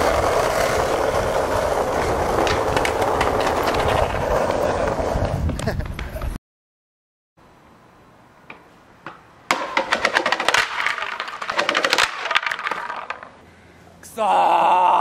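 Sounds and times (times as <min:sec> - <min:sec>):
skateboard clattering down stairs: 0:09.5 - 0:13.4.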